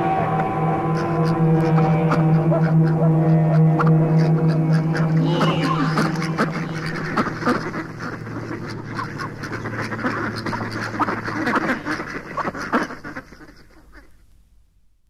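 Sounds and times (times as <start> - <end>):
low steady hum: 0.0 - 13.8
warbling quack-like blips: 3.8 - 13.6.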